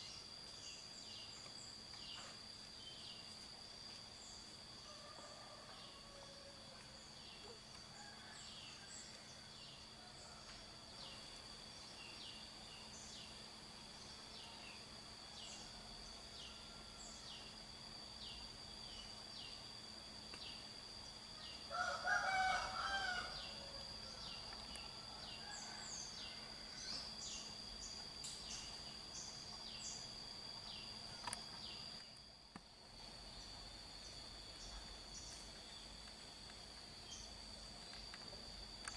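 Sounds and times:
high insect drone: 0.0 - 38.9
rooster crowing: 4.8 - 7.0, 7.9 - 11.1, 21.7 - 24.4, 25.0 - 27.0.

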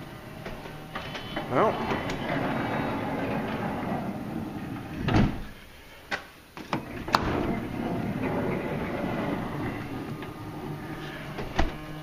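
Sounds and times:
power sliding door motor running: 0.0 - 5.6, 6.8 - 12.0.

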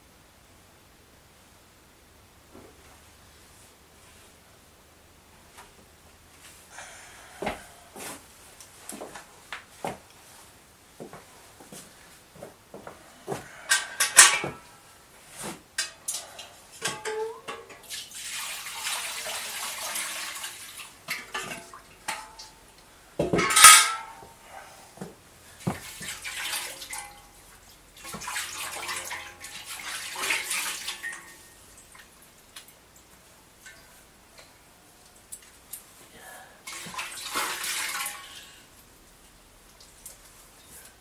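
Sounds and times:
water splashing into a basin: 17.7 - 22.2, 25.6 - 27.2, 28.0 - 32.2, 36.7 - 38.5
metal or crockery clinking: 23.4 - 24.2.

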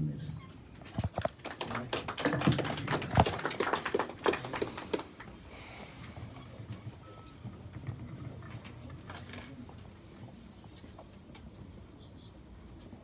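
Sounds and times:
people applauding: 1.0 - 5.6.

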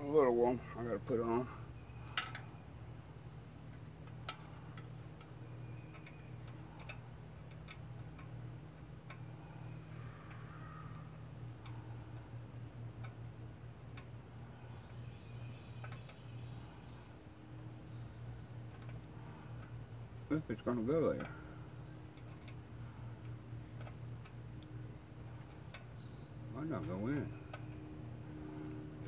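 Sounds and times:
steady low hum: 0.0 - 29.0
small metal clicks and taps: 2.0 - 2.5, 3.6 - 9.4, 10.2 - 12.3, 12.9 - 15.0, 15.8 - 16.3, 18.6 - 19.8, 20.6 - 27.8.

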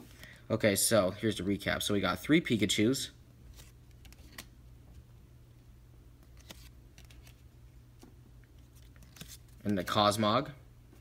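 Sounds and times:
low room hum: 0.0 - 11.0
cardboard cards clicking: 3.6 - 4.5.

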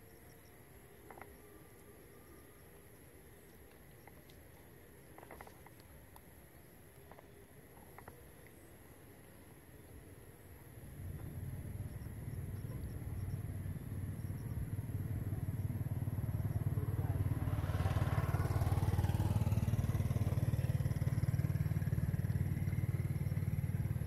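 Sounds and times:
vehicle engine rumbling: 10.8 - 24.0
vehicle passing rush: 14.8 - 24.0.

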